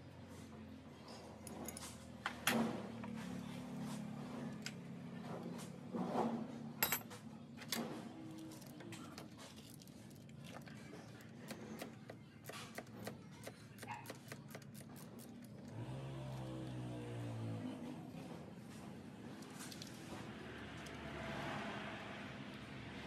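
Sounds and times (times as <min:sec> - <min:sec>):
hand tools clinking on metal: 0:06.8 - 0:07.8.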